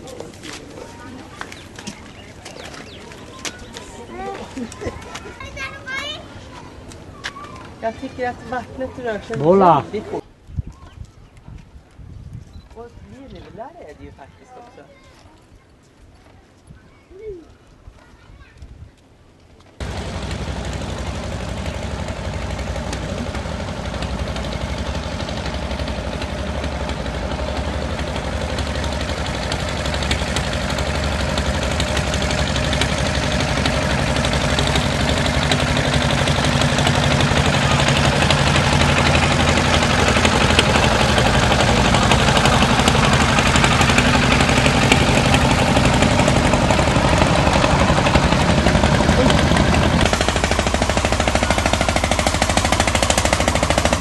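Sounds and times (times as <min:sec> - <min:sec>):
boat engine running: 0:19.8 - 0:54.0.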